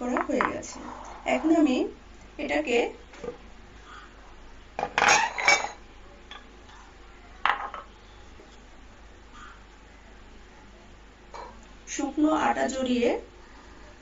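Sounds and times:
kitchenware knocking on counter: 0:07.4 - 0:07.9.

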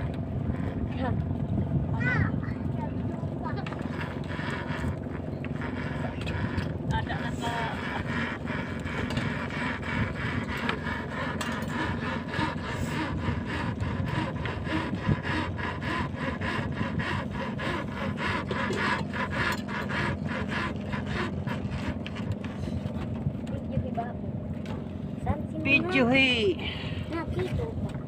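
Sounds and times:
rope rasping against bamboo: 0:00.0 - 0:01.0, 0:03.5 - 0:23.1.

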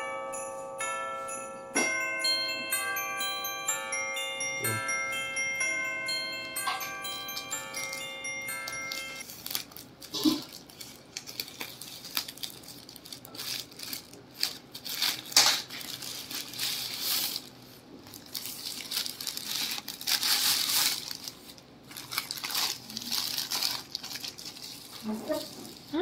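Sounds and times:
plastic bag crinkling: 0:06.6 - 0:26.0
scissors cutting plastic: 0:08.9 - 0:17.5.

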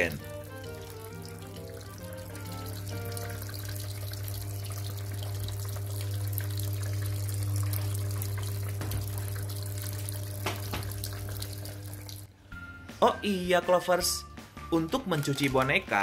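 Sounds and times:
water pouring into drum: 0:00.0 - 0:12.3
washing machine hum: 0:00.0 - 0:12.4.

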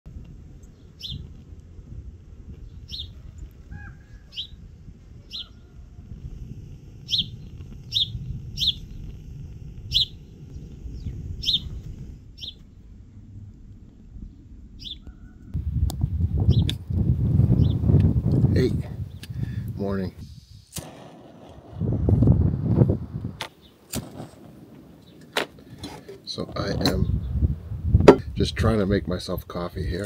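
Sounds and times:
wind rumble on microphone: 0:00.1 - 0:30.0
sparrow chirping: 0:00.6 - 0:01.3, 0:02.6 - 0:04.6, 0:05.2 - 0:05.8, 0:07.1 - 0:09.1, 0:09.9 - 0:11.8, 0:12.4 - 0:12.7, 0:14.8 - 0:15.5, 0:16.4 - 0:16.7, 0:17.5 - 0:17.9.

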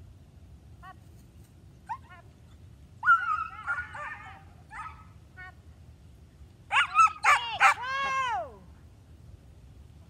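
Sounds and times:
dog barking and yipping: 0:03.0 - 0:05.1, 0:06.7 - 0:07.9.

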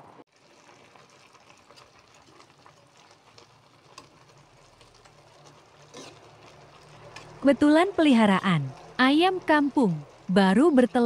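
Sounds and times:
curry bubbling in a wok: 0:00.3 - 0:11.0.

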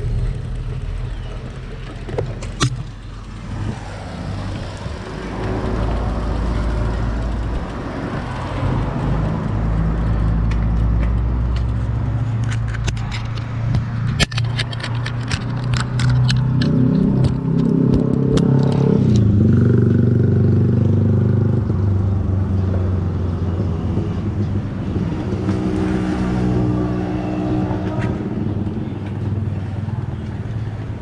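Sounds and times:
sharp clicks: 0:00.0 - 0:19.4
steady low rumble: 0:00.0 - 0:19.6
vehicle engine revving: 0:00.0 - 0:31.0.

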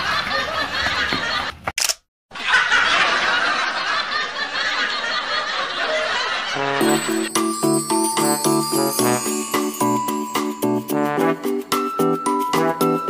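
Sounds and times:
continuous laughter: 0:00.0 - 0:01.6, 0:02.3 - 0:06.6
sharp click: 0:01.8 - 0:02.1
cheerful music jingle: 0:06.8 - 0:13.0.

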